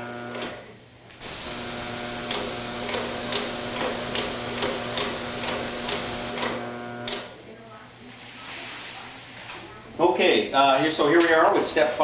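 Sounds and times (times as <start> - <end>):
paint sprayer hissing: 1.2 - 6.8.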